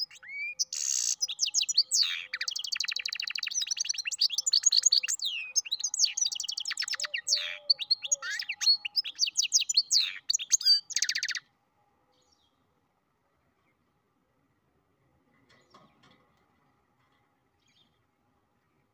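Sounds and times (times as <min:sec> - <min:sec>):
bird singing trills and whistles: 0:00.0 - 0:11.4.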